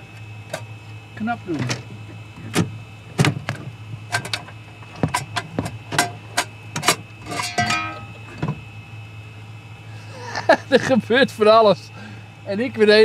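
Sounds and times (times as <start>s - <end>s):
steady low hum: 0.0s - 13.0s
short metallic ring: 7.2s - 8.4s.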